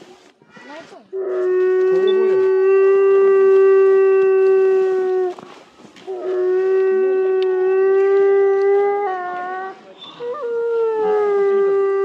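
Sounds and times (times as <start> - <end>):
wolf howling: 1.1 - 12.0.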